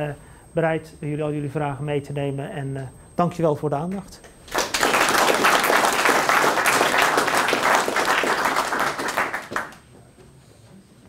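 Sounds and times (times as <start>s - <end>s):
audience applauding: 4.5s - 9.9s.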